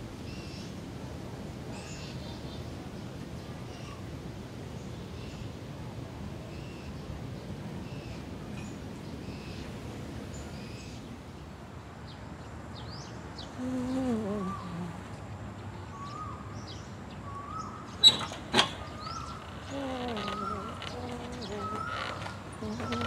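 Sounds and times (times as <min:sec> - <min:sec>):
small birds chirping: 0:12.0 - 0:23.0.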